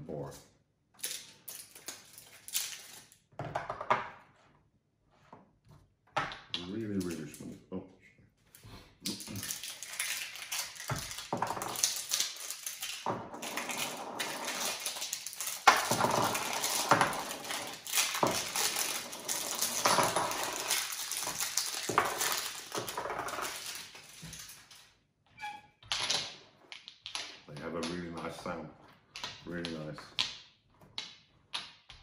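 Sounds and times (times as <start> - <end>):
plastic wrapping crinkling: 1.0 - 3.2, 8.4 - 25.0
game pieces clattering: 9.1 - 24.7, 25.8 - 28.5.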